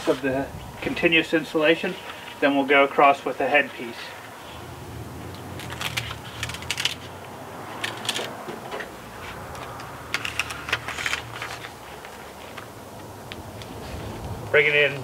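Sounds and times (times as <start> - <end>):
tape crackling as peeled: 5.3 - 8.4, 9.2 - 14.3.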